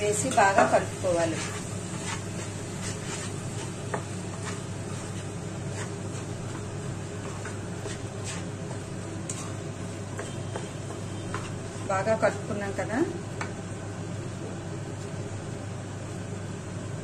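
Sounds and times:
spatula scraping and tapping pan: 0:00.2 - 0:12.3.

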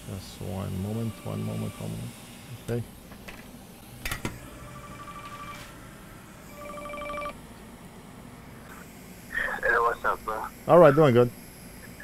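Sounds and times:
electronic telephone ringing: 0:04.6 - 0:05.7, 0:06.5 - 0:07.4.

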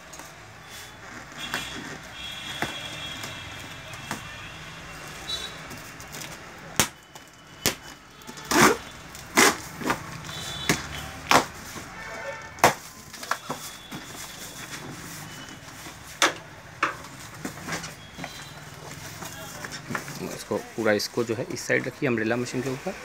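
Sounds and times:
cardboard and tape ripping: 0:08.3 - 0:10.1
cardboard rustling: 0:12.6 - 0:16.2, 0:17.0 - 0:22.0.

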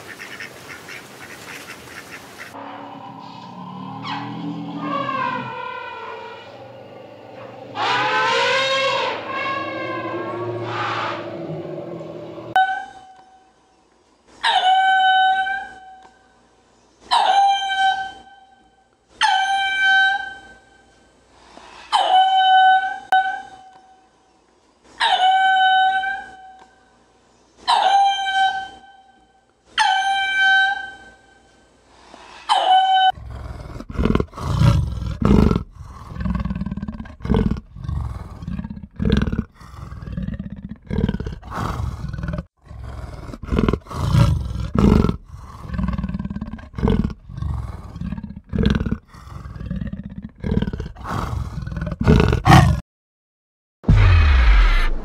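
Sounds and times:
long wailing animal calls: 0:02.6 - 0:13.2
big cat rasping grunts: 0:33.2 - 0:52.8.

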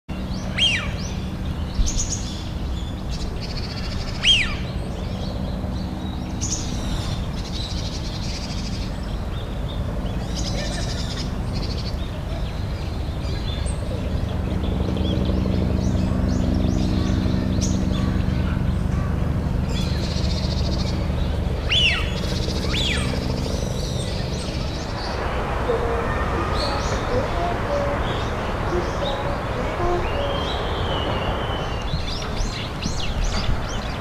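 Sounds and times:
small birds chirping: 0:00.1 - 0:34.0
steady low hum: 0:00.1 - 0:34.0
sharp falling bird calls: 0:19.7 - 0:25.2.

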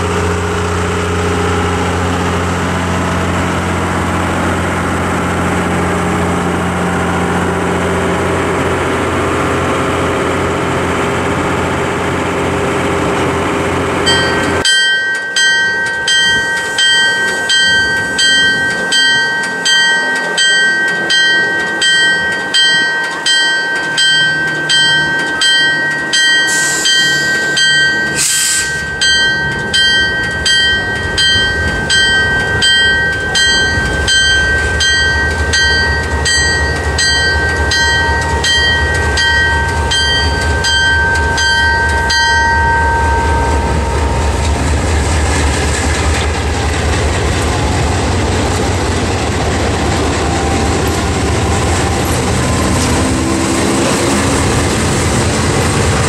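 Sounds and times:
diesel engine low rumble: 0:00.0 - 0:56.0
locomotive bell ringing: 0:12.4 - 0:56.0.

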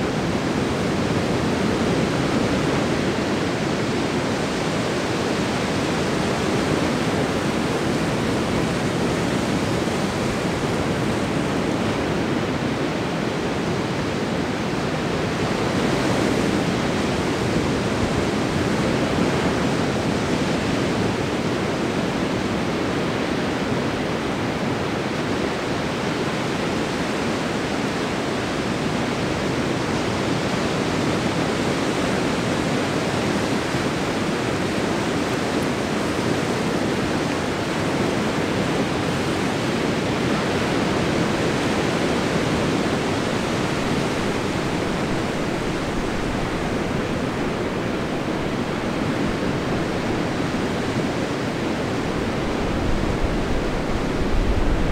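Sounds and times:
ocean surf breaking: 0:28.4 - 0:54.9.

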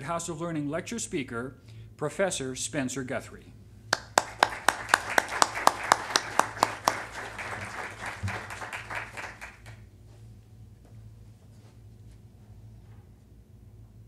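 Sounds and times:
sharp hand claps: 0:03.9 - 0:09.8
audience applause: 0:04.0 - 0:09.8.

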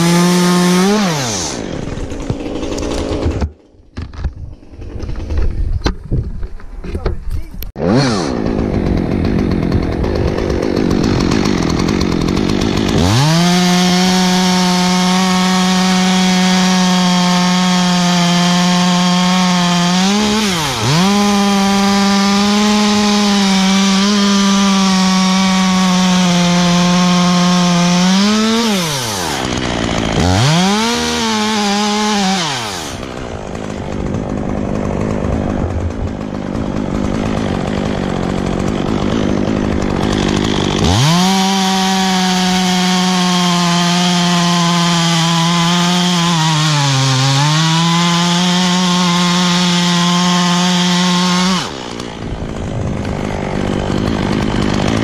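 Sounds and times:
chainsaw revving and idling: 0:00.0 - 0:05.6, 0:07.7 - 0:55.0.

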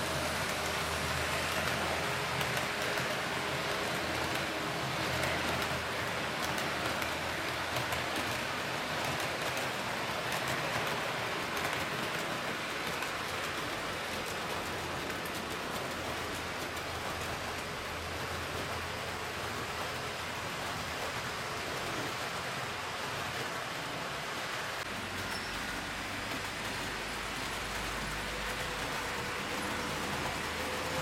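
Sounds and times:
model train wheels rumbling: 0:00.0 - 0:31.0.

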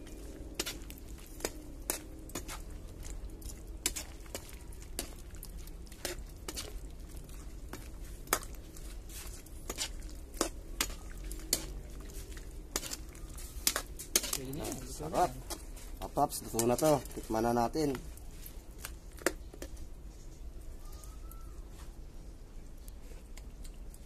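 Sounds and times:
spoon clinking and scraping on pan: 0:00.0 - 0:17.2
metal spoon stirring thick sauce: 0:00.0 - 0:20.4.

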